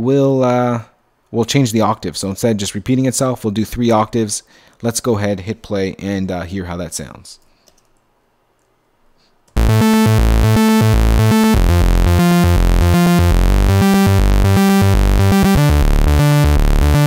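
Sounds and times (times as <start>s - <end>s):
synth lead fast arpeggio: 9.6s - 17.0s.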